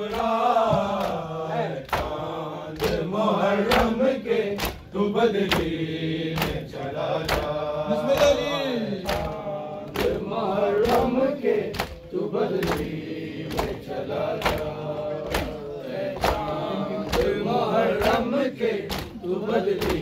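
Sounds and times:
men chanting in unison: 0.0s - 20.0s
hands slapping chests: 0.1s - 4.0s, 4.6s - 20.0s.

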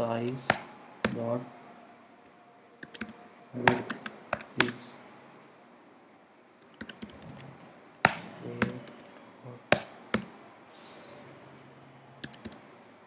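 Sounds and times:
computer keyboard typing: 2.8s - 4.8s, 6.8s - 9.1s, 12.2s - 12.6s.

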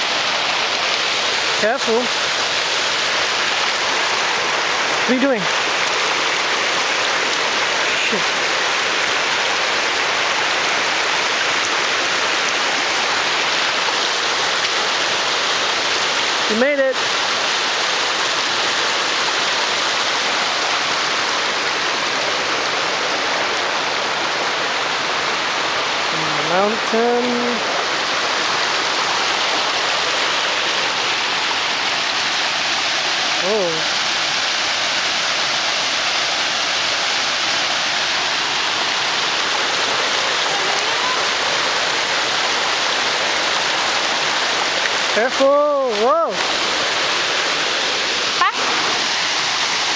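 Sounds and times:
waterfall pouring over rocks: 0.0s - 49.9s.

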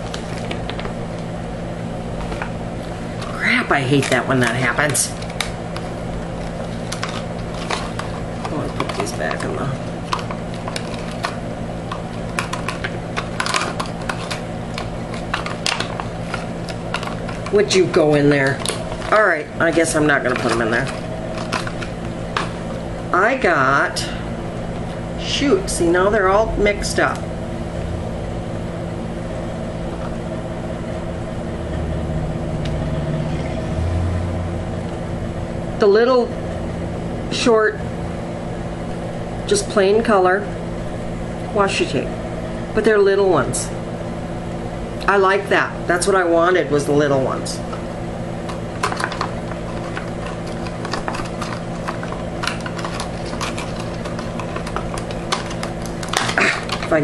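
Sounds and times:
steady mechanical hum: 0.0s - 57.0s
tape rolls clicking on table: 6.5s - 22.6s, 48.5s - 57.0s.

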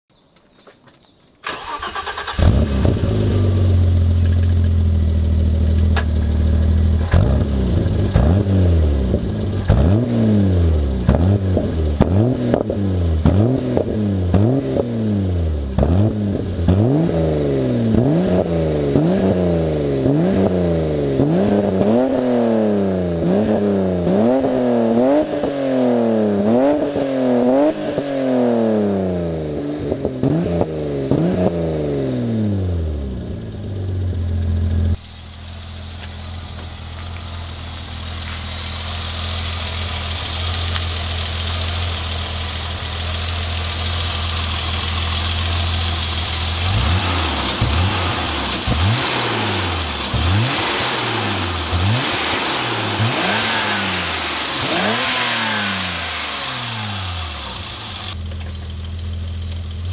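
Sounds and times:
car engine revving: 1.4s - 59.9s
car engine starting: 1.4s - 59.9s
car engine idling: 1.5s - 14.6s, 32.8s - 59.9s.

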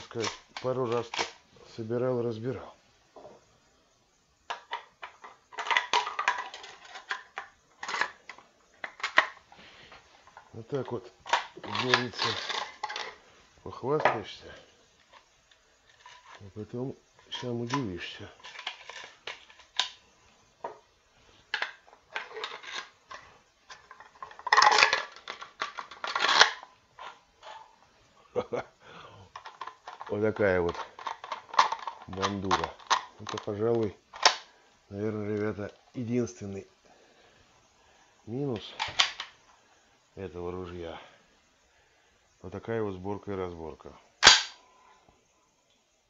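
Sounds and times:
shotgun parts clicking and clattering: 0.0s - 1.4s, 4.5s - 9.4s, 10.3s - 13.2s, 17.2s - 20.0s, 21.5s - 27.7s, 29.3s - 34.5s, 38.6s - 39.4s, 44.2s - 44.6s.

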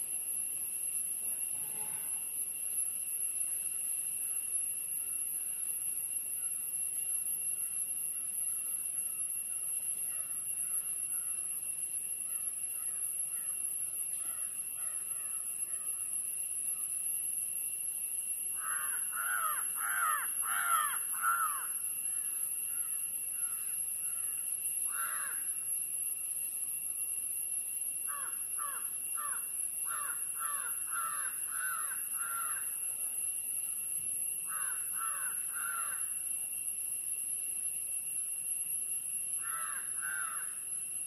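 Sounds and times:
steady high-pitched hiss: 0.0s - 41.0s
crows cawing: 18.6s - 21.7s, 24.9s - 25.4s, 28.1s - 32.7s, 34.5s - 36.0s, 39.4s - 40.5s.

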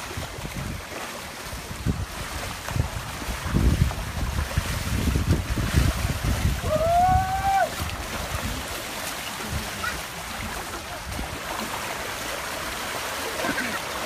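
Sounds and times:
wind rumbling on microphone: 0.0s - 13.5s
waves washing: 0.0s - 14.0s.

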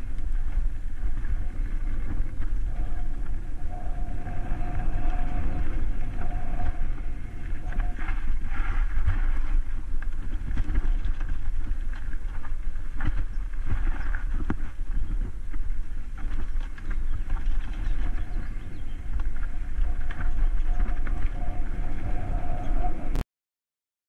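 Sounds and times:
thin whine: 0.0s - 11.4s, 17.3s - 23.2s
wind buffeting microphone: 0.0s - 23.2s
bike tyres rattling over stones: 8.0s - 21.3s.

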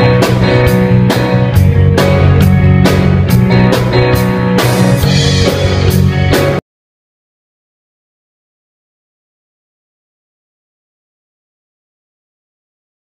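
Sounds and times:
music with a steady beat: 0.0s - 6.6s.

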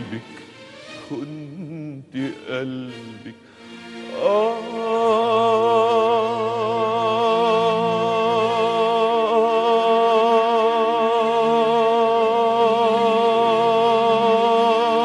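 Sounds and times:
man singing long high note: 0.0s - 0.4s, 1.0s - 3.4s, 4.1s - 15.0s
low sustained accompaniment: 3.9s - 15.0s.

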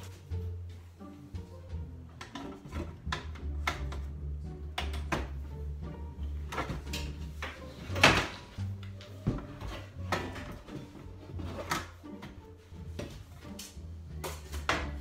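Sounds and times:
drawer panels knocking and clicking: 6.4s - 13.2s.

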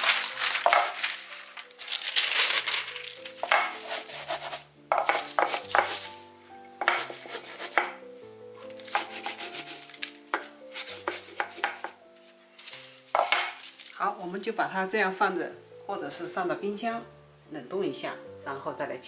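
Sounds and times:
rolling pin over rustling paper: 0.0s - 8.0s, 8.6s - 14.5s
soft background music: 0.0s - 19.0s.

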